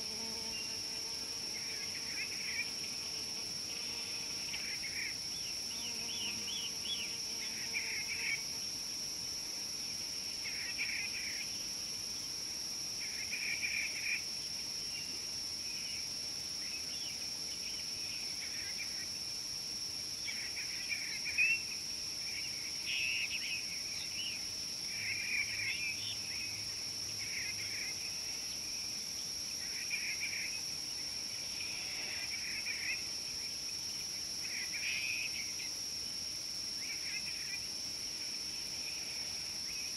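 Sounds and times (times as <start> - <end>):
high-pitched insect drone: 29.6 - 35.8.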